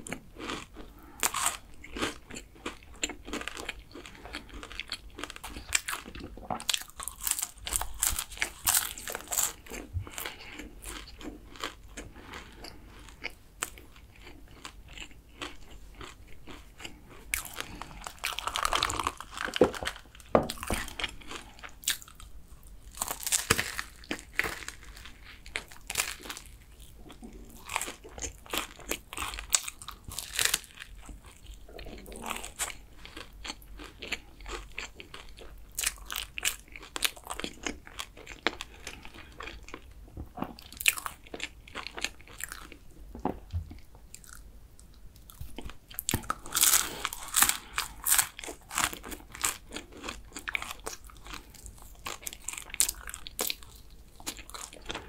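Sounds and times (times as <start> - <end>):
chewing: 0.0 - 22.3, 22.9 - 55.0
crunchy pastry bites: 22.9 - 31.2, 45.2 - 55.0.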